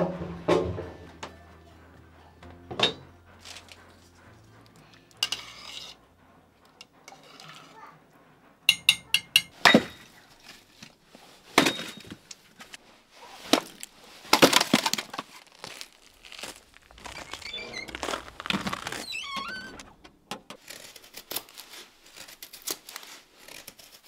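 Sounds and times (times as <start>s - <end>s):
wooden clunks: 0.0s - 1.4s
firewood pieces knocking together: 13.5s - 16.5s.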